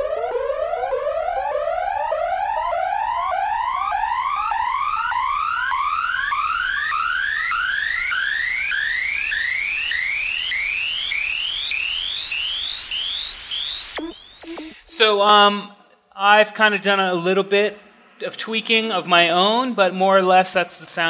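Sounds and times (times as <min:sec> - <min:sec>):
synthesized rising tone: 0:10.8 - 0:15.6, 0:16.6 - 0:19.7
bright hiss: 0:12.8 - 0:15.5, 0:16.8 - 0:19.6.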